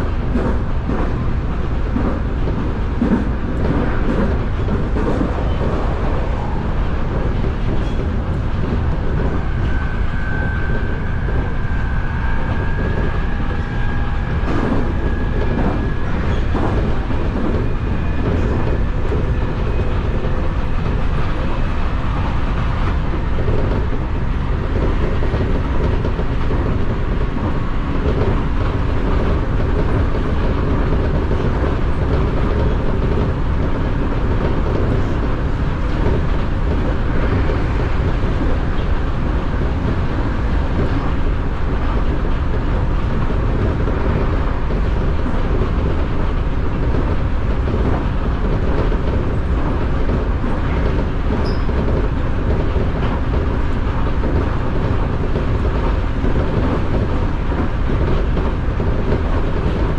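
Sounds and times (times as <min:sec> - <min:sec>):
rail joint clacks: 0:00.0 - 0:59.9
train wheels rumbling on rails: 0:00.0 - 0:59.9.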